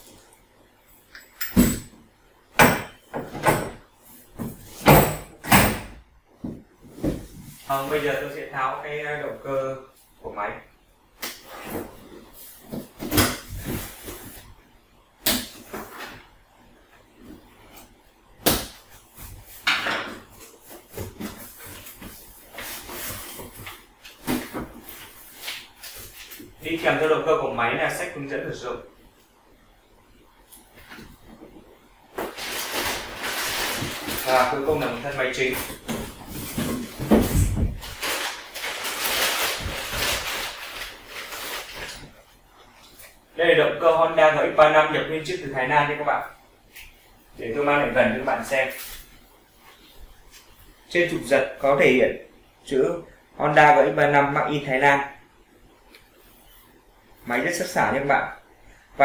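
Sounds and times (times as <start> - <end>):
plastic bag crinkling: 32.3 - 34.6, 37.8 - 42.1.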